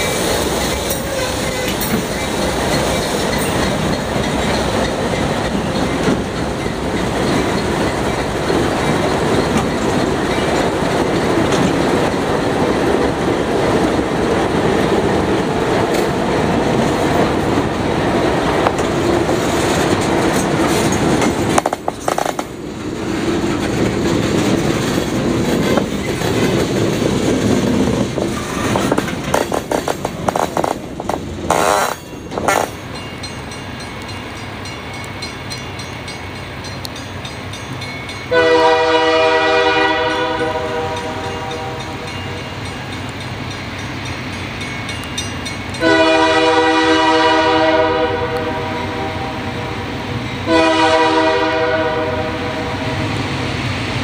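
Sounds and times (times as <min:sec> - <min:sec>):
wheels clacking over rail joints: 0:00.0 - 0:38.6
diesel locomotives running: 0:00.0 - 0:54.0.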